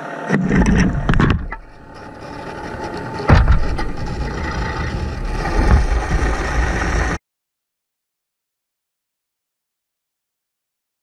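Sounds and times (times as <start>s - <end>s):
underwater rumble and water noise: 0.3s - 7.2s.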